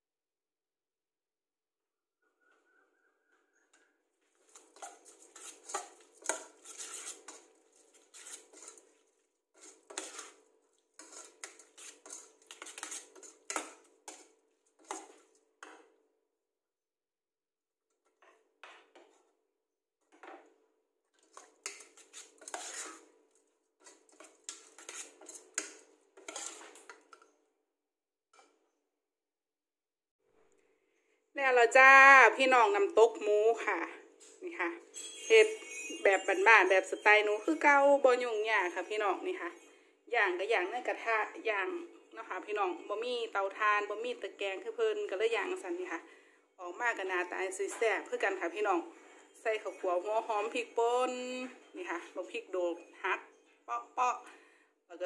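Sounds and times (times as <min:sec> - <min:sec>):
metal spatula scraping saucepan: 0:04.4 - 0:15.4, 0:21.2 - 0:23.1, 0:23.8 - 0:27.3.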